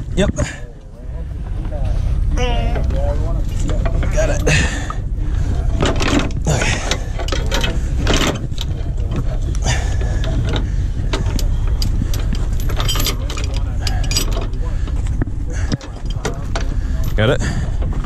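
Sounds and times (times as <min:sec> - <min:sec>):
low rumble: 0:00.0 - 0:18.0
steel chain clinking and scraping: 0:05.8 - 0:15.0.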